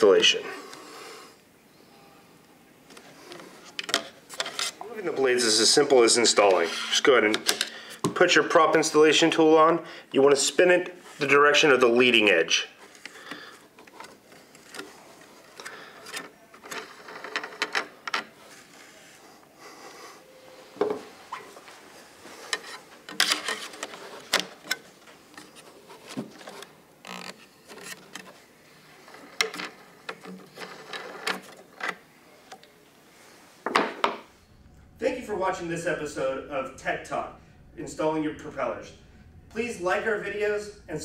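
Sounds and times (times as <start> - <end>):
plastic propellers clicking and rubbing: 12.9 - 18.8, 22.4 - 32.7.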